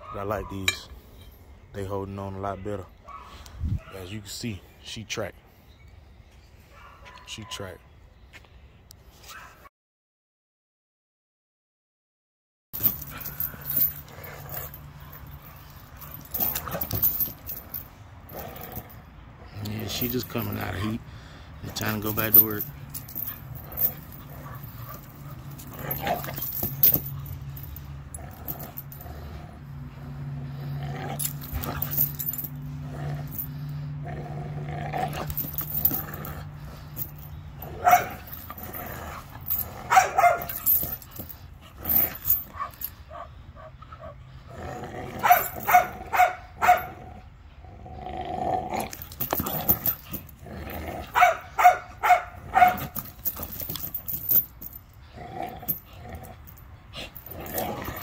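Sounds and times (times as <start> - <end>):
dogs barking: 0.0 - 0.9, 3.0 - 4.2, 6.7 - 7.7, 21.7 - 33.7, 34.5 - 44.4, 45.1 - 47.2, 51.0 - 54.4
dogs growling: 12.8 - 21.0, 21.7 - 58.0.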